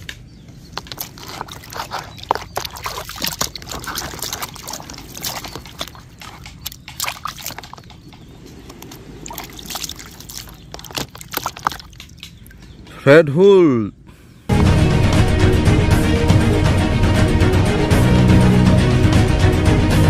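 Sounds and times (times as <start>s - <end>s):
water splashing in plastic basin: 0.7s - 12.6s.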